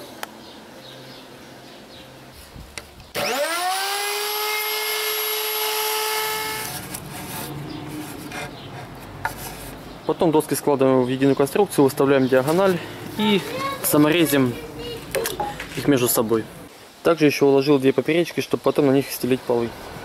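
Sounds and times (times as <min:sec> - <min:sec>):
router bit cutting wood: 0:03.1 - 0:06.9
wood router motor whining: 0:03.1 - 0:07.0.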